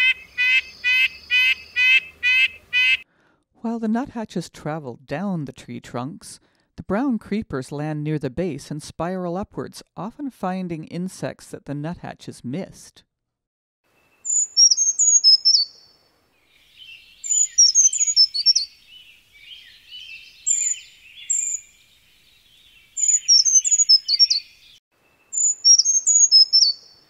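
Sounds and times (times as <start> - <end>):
birds twittering: 0.0 - 3.0, 14.0 - 27.0
bird singing high thin songs: 14.0 - 27.0.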